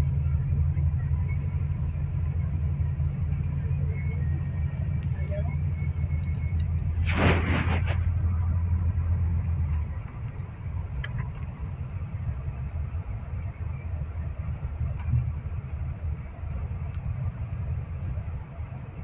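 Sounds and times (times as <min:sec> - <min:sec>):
vehicle engine and road noise: 0:00.0 - 0:19.0
loud rushing hiss: 0:07.0 - 0:08.1.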